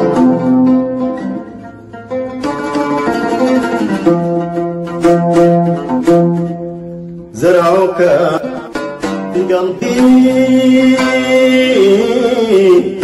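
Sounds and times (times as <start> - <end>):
oud playing: 0.0 - 13.0
man singing: 7.3 - 13.0.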